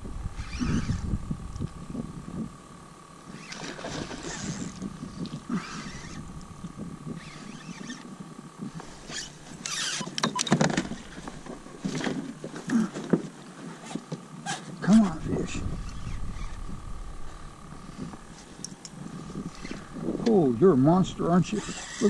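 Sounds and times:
wind rumble on microphone: 0.0 - 9.6, 14.8 - 22.0.

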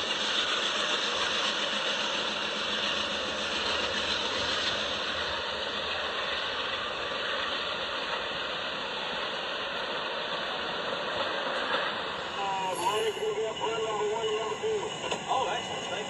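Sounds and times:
toy train whirring and rattling: 12.5 - 14.5.

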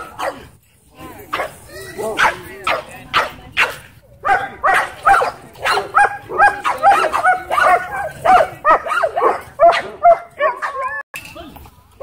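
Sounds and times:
dog barking high-pitched: 2.2 - 11.0.

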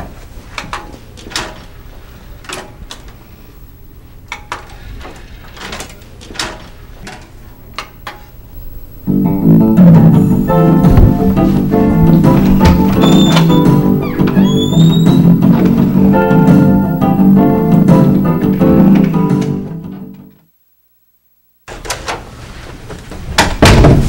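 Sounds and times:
guitar and bass music from television: 9.0 - 20.4.

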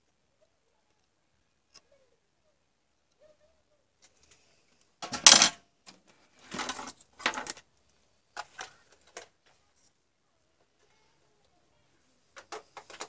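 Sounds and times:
metal tools clattering: 5.0 - 5.6.

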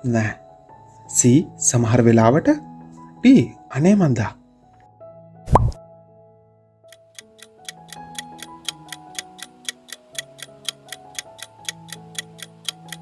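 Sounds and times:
soft background music: 0.0 - 13.0
clock ticking: 6.9 - 13.0.

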